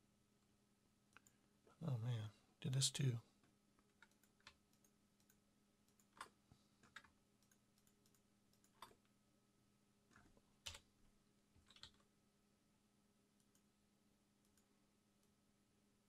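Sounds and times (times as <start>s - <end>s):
computer keyboard and mouse clicks: 3.8s - 9.1s, 10.1s - 10.9s, 11.6s - 12.1s.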